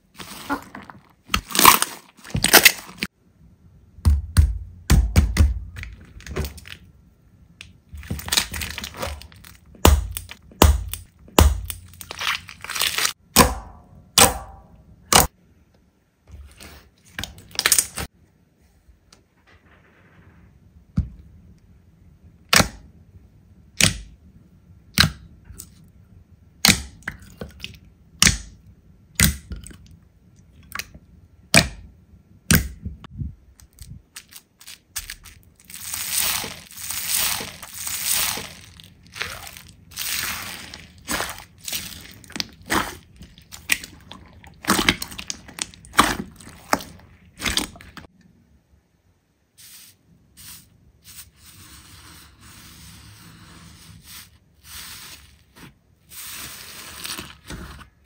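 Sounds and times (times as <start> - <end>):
slime crackling: 8.0 - 13.2, 33.7 - 48.1
slime popping: 35.0 - 48.1.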